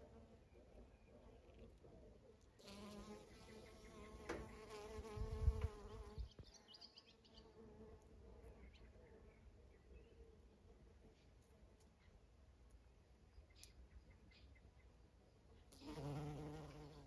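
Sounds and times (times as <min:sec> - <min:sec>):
bee buzzing close by: 0:02.6 - 0:06.3, 0:15.8 - 0:17.0.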